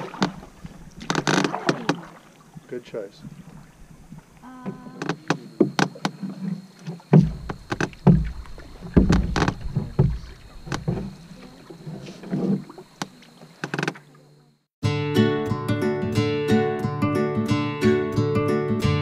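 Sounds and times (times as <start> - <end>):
paddles knocking on canoe: 0.0 - 14.4
low thumps: 6.9 - 12.9.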